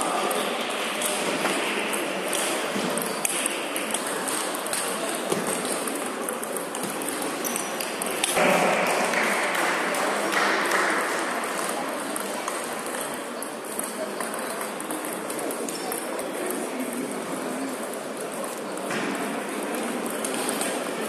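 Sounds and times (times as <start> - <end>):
ping pong ball clicking: 2.3 - 8.4.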